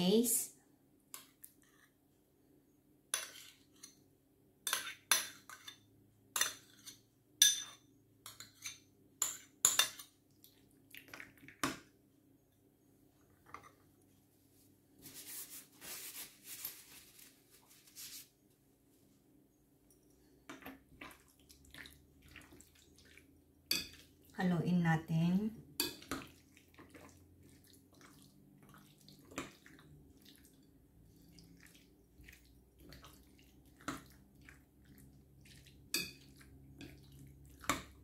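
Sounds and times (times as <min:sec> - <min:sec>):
spoon scraping dish: 0:03.2 - 0:04.0, 0:04.7 - 0:10.1
spoon clinking on ceramic dish: 0:04.7 - 0:10.1, 0:23.7 - 0:24.0.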